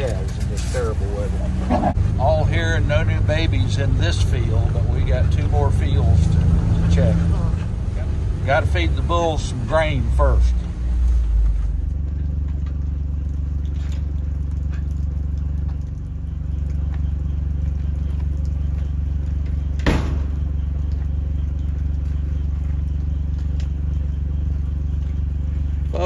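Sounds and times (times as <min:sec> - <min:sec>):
utility vehicle engine idling: 0:00.0 - 0:26.0.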